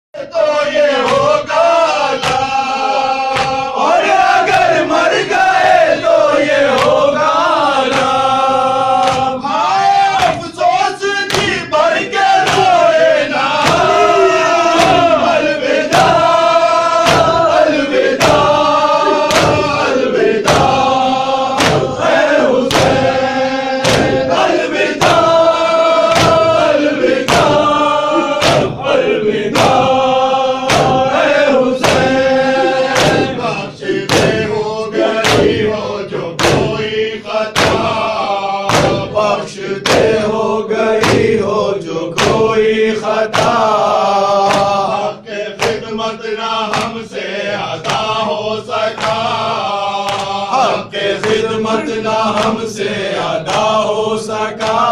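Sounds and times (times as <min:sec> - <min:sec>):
men chanting a lament: 0:00.1 - 0:54.9
hands striking chests: 0:02.2 - 0:02.6, 0:03.3 - 0:03.6, 0:09.0 - 0:09.4, 0:11.3 - 0:11.7, 0:12.4 - 0:12.8, 0:13.5 - 0:14.1, 0:14.7 - 0:23.2, 0:23.8 - 0:25.4, 0:26.0 - 0:28.8, 0:30.6 - 0:34.6, 0:35.2 - 0:35.8, 0:36.4 - 0:36.9, 0:37.5 - 0:38.1, 0:38.7 - 0:40.2, 0:41.0 - 0:41.4, 0:42.1 - 0:42.5, 0:43.3 - 0:45.0, 0:45.6 - 0:45.9, 0:46.7 - 0:47.0.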